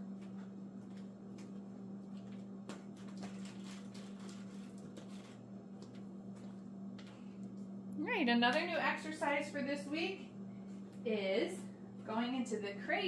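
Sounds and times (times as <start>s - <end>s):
steady low hum: 0.0s - 13.0s
footsteps on vinyl floor: 5.0s - 7.3s.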